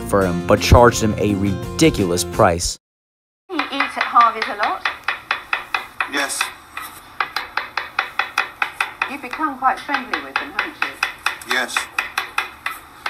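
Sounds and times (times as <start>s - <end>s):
knife chopping on cutting board: 3.6s - 13.0s.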